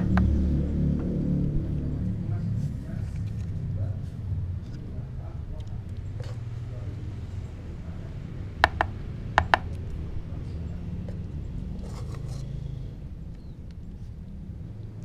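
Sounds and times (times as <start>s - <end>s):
steady low rumble: 0.0s - 11.8s.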